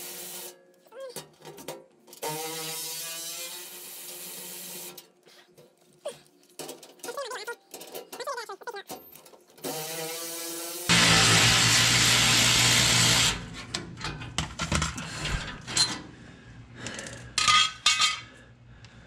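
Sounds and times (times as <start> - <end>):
metal clicks and rattles: 6.5 - 9.6.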